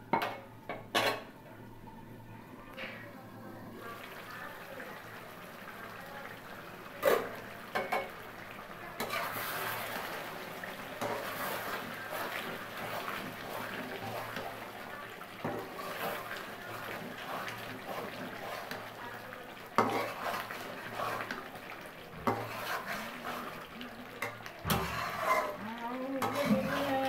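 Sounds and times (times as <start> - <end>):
curry simmering and sizzling: 0.1 - 27.0
metal spatula scraping pot: 9.0 - 10.2, 11.0 - 14.5, 15.4 - 18.9, 19.8 - 21.5, 22.2 - 23.6, 24.2 - 27.0.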